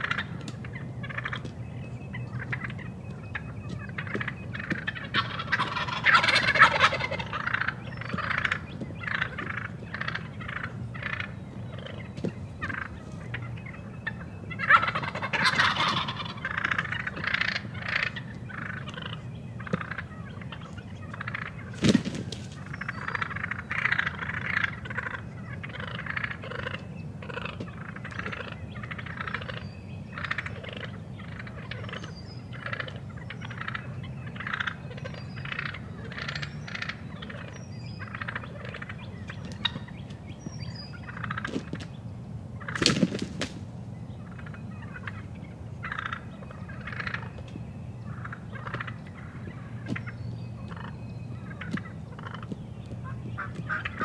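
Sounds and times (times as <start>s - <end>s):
turkey gobbling: 0.0s - 41.8s, 42.6s - 47.4s, 48.0s - 54.0s
short turkey calls: 2.2s - 21.6s, 44.2s - 47.4s.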